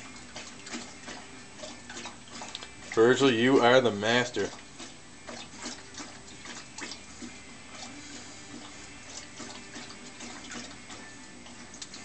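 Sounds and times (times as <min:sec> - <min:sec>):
dog lapping water: 0:00.0 - 0:12.0.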